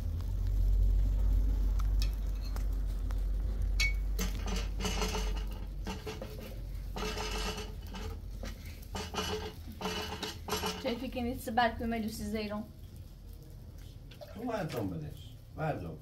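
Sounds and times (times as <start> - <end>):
low rumble: 0.0 - 7.0
dishes and utensils clattering: 3.8 - 11.1.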